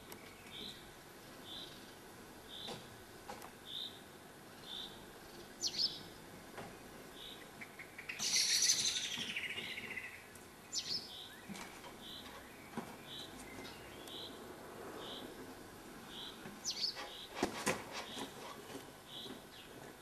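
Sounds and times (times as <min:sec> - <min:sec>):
sharp bird chirps: 0:07.2 - 0:10.2.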